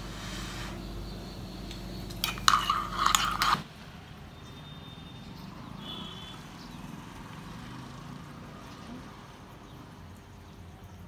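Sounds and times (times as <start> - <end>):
spoon clinking in mug: 2.1 - 3.6.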